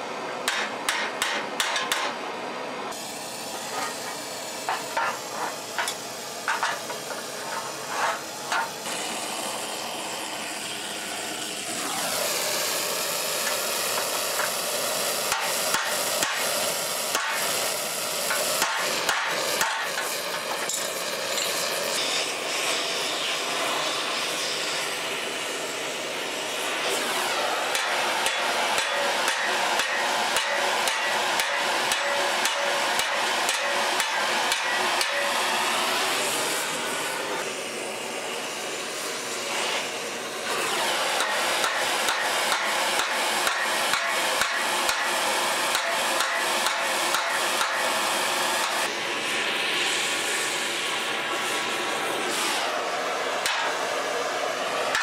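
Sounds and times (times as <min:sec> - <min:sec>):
hammer pounding steel: 0:00.4 - 0:02.2, 0:03.6 - 0:08.8, 0:15.3 - 0:16.5, 0:17.1 - 0:17.6, 0:18.2 - 0:21.7, 0:27.5 - 0:35.4, 0:41.0 - 0:48.9, 0:53.4 - 0:53.8
torch hissing: 0:02.9 - 0:55.0.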